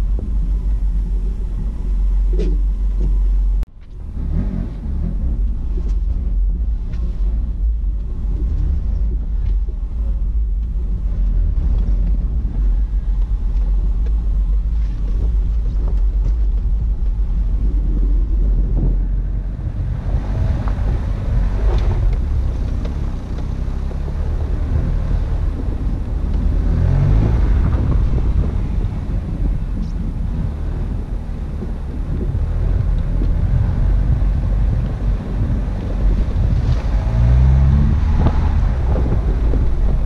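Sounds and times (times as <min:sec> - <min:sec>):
car driving low rumble: 0:00.0 - 0:40.0.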